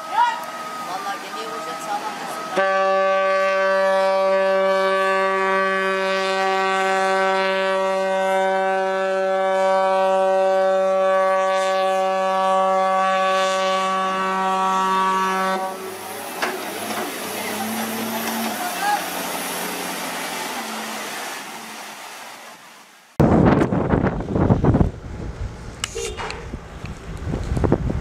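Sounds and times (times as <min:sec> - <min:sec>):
ship's horn blast: 0:00.0 - 0:22.0.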